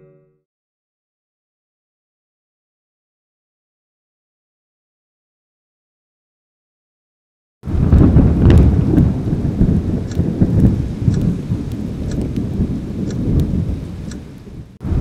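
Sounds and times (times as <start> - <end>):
roaring fire crackling: 7.7 - 15.0.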